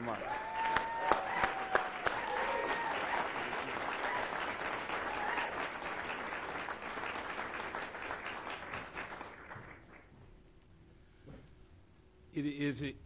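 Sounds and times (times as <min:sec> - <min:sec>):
people applauding: 0:00.0 - 0:10.2.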